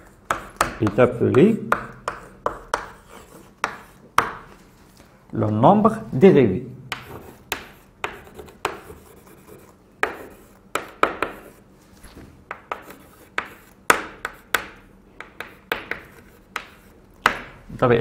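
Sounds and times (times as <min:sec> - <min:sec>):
chalk scratching on blackboard: 0:00.0 - 0:04.1, 0:06.9 - 0:11.7, 0:12.5 - 0:17.0
chalk tapping on blackboard: 0:00.0 - 0:04.5, 0:06.9 - 0:11.6, 0:12.5 - 0:17.6.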